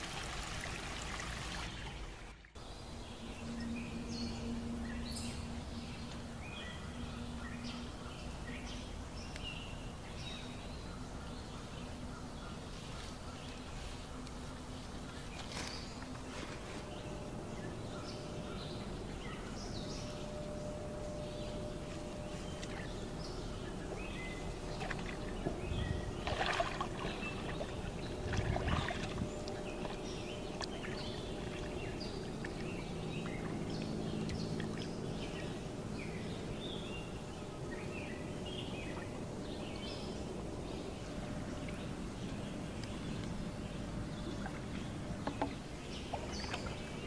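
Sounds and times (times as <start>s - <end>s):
water sloshing while wading: 0.0s - 2.6s, 12.5s - 19.6s, 20.2s - 36.6s, 41.1s - 47.0s
steady outdoor hiss: 0.0s - 47.0s
birds chirping: 0.7s - 47.0s.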